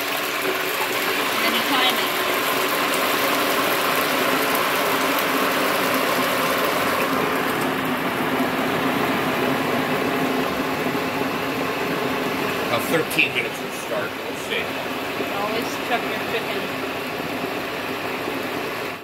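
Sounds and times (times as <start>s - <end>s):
faint steady hum: 0.0s - 19.0s
oil sizzling in deep fryer: 0.0s - 19.0s.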